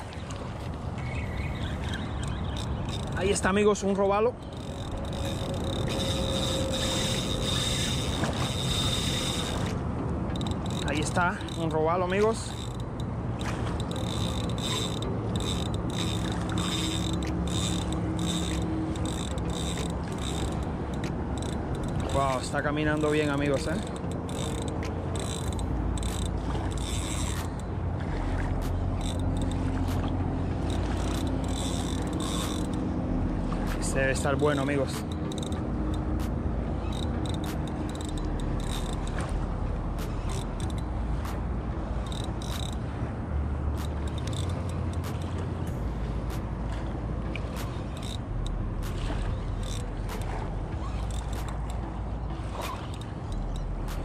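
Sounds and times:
fishing reel gears whirring: 1.1 - 43.0, 43.6 - 54.0
thin high whine: 4.6 - 9.7.

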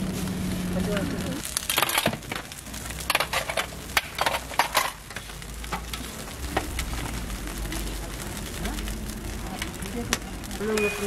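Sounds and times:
food frying in oil: 0.0 - 11.0
metal utensils clinking and scraping: 1.6 - 6.1.

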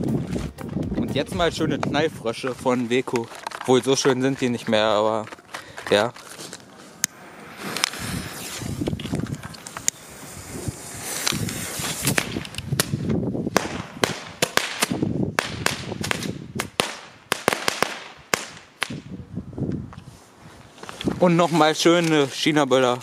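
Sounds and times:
firecrackers banging: 6.9 - 19.1.

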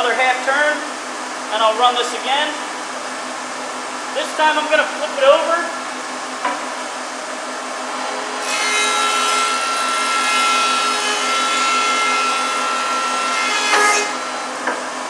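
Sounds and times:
thickness planer running hum: 0.0 - 15.0
planer cutting whine: 7.8 - 14.7.

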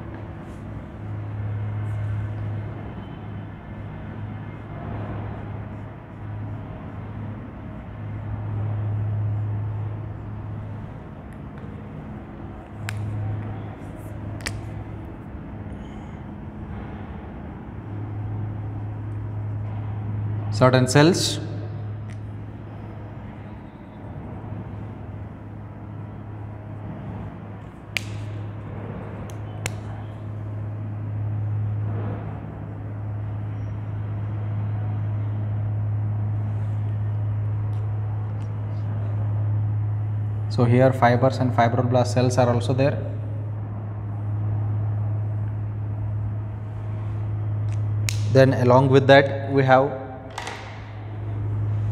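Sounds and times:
low droning hum: 0.0 - 51.9
marker tapping on whiteboard: 50.3 - 50.8.

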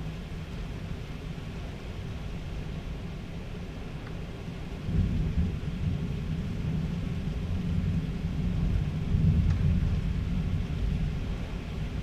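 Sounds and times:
thunder rumbling: 4.8 - 12.0.

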